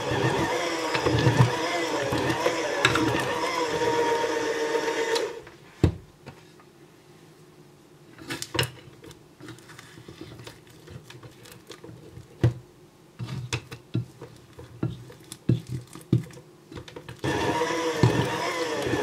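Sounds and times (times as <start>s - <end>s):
electric hand mixer running: 0.0s - 5.4s, 17.2s - 19.0s.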